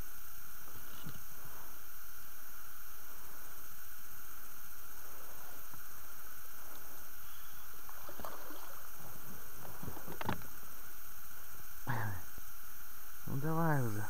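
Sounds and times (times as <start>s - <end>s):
steady hiss: 0.0s - 14.0s
water lapping against a boat: 4.9s - 10.5s
light knocks and splashes: 7.8s - 10.5s
low grunt-like voice: 11.9s - 12.3s.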